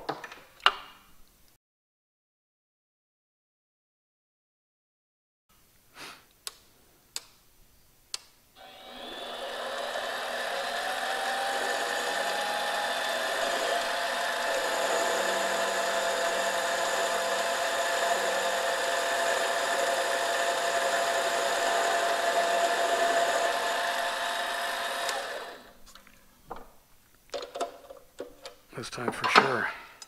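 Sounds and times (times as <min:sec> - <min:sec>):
lathe motor whine: 0:08.6 - 0:25.8.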